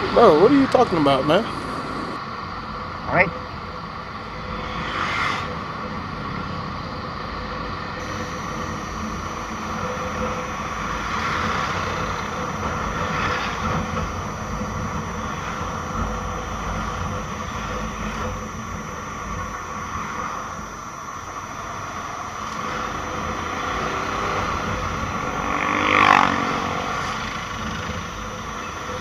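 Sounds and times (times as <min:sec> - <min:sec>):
road and wind noise: 0:00.0 - 0:29.0
motorcycle engine running: 0:08.0 - 0:29.0.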